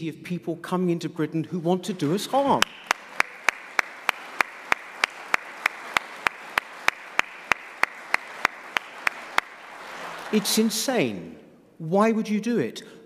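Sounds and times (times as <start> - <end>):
audience applauding: 2.4 - 11.1.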